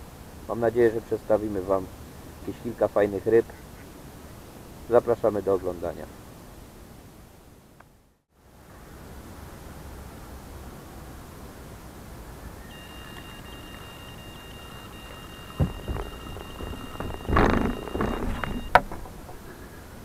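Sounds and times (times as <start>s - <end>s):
bite alarm beeping: 12.7s - 18.8s
thumps on wooden pier: 13.7s - 19.5s.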